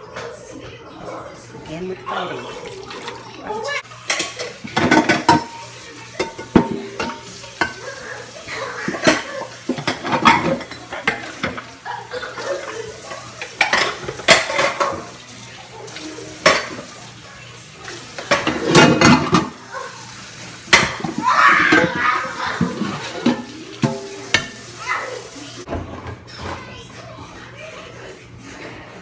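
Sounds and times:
dishes and cutlery clattering: 2.7 - 17.1, 17.8 - 19.9, 20.6 - 27.0.

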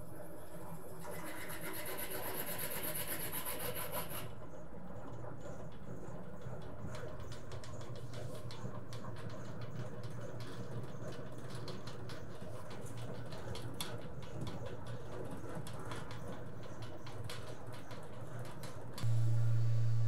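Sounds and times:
mixer motor humming: 19.0 - 20.0.

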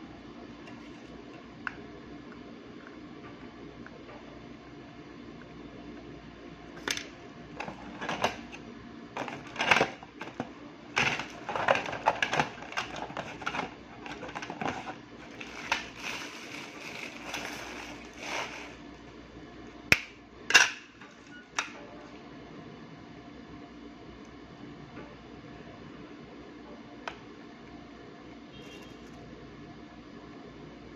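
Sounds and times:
parts and tools handled on desk: 6.8 - 8.6, 9.2 - 18.8.

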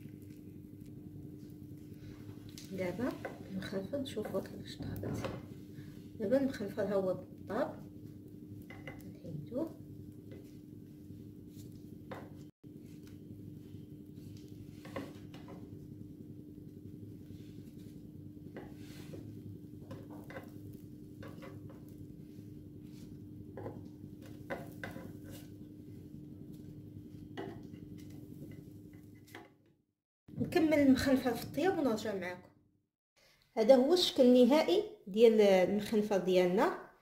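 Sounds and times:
spatula scraping and tapping pan: 2.9 - 4.6, 8.6 - 9.2, 10.1 - 10.6, 14.7 - 15.7, 17.8 - 22.0, 22.9 - 25.7, 27.3 - 29.6.

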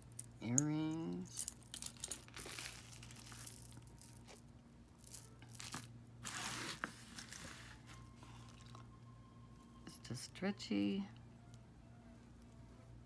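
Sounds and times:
bag rustling and crinkling: 1.6 - 4.4, 5.1 - 8.8.

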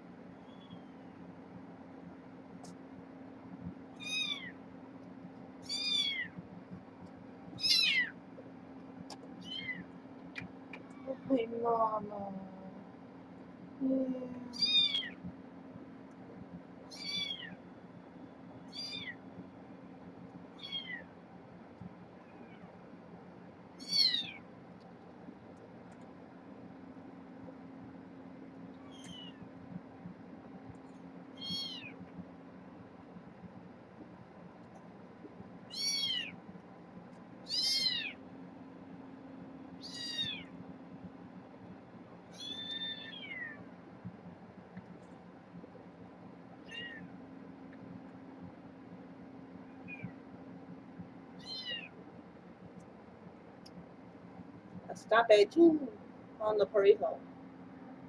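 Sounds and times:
faint low hum: 0.0 - 58.0
kitten mewing: 7.6 - 8.1, 13.8 - 15.2, 16.9 - 17.6, 18.8 - 19.2, 31.4 - 32.0, 35.7 - 36.3, 37.5 - 38.2, 39.8 - 40.5, 46.7 - 47.1.

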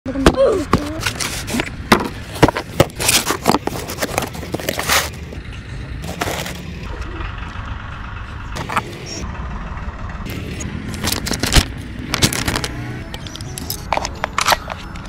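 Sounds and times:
cardboard rustling: 0.3 - 5.4, 6.0 - 6.7
cardboard scraping: 0.6 - 5.4, 6.0 - 6.7
cardboard box knocks and clicks: 1.9 - 4.8.

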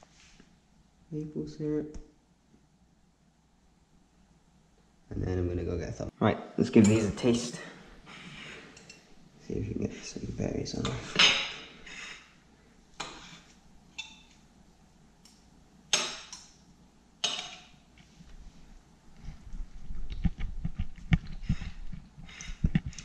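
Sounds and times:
cutlery scraping a ceramic plate: 13.0 - 14.3.

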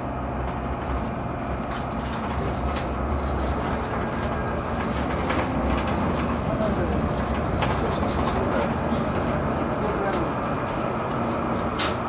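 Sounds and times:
tram wheels rumbling on rails: 0.0 - 12.0.

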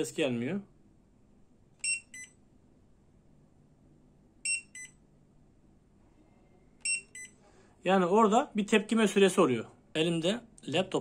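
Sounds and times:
short electronic beeps: 1.8 - 2.4, 4.4 - 5.0, 6.8 - 7.4.

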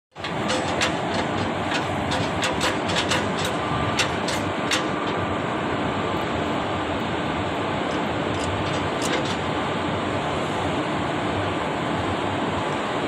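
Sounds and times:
electric locomotive running: 0.1 - 10.0
metallic clicks of coupling gear: 0.2 - 5.2, 7.9 - 9.5.

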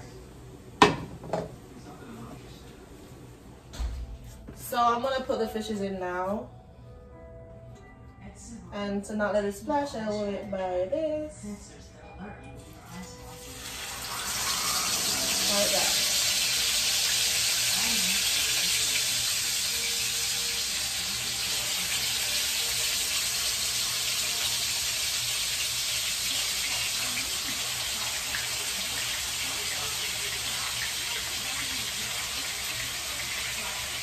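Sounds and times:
fish sizzling in hot oil: 13.3 - 34.0.

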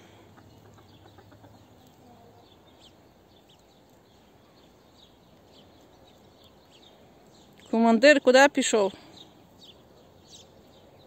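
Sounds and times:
chickens clucking faintly: 0.0 - 4.8.

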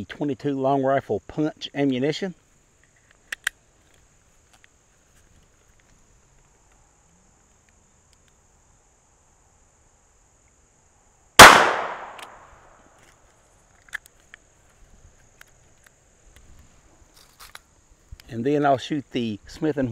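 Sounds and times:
gunshot crack with echo: 11.4 - 12.5.

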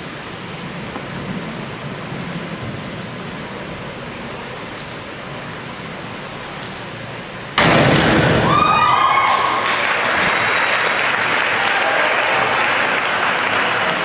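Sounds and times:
indoor hall background hiss: 0.0 - 14.0.

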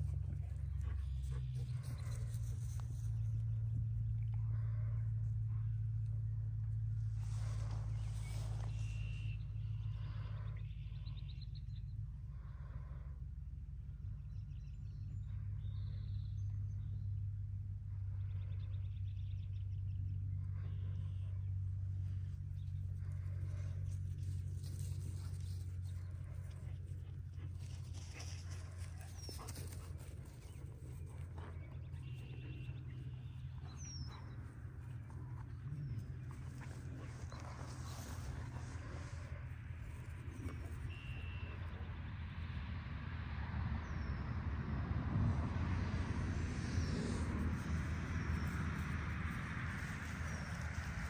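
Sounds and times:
steady low hum: 0.0 - 51.0
birds chirping: 18.2 - 42.0.

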